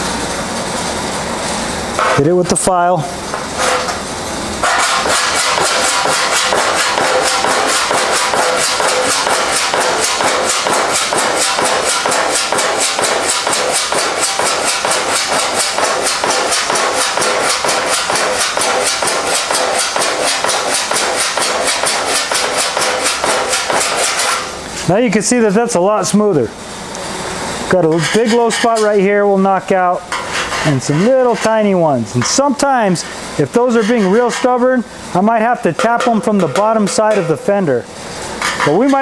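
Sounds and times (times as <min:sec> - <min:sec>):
hand file rasping on steel: 0:04.6 - 0:24.5, 0:27.9 - 0:28.9, 0:30.1 - 0:31.7, 0:33.7 - 0:34.6.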